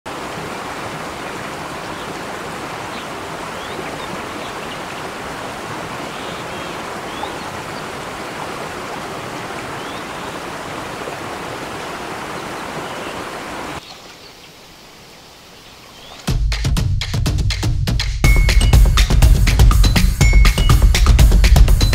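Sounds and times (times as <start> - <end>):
stream rushing over rocks: 0.1 - 16.3.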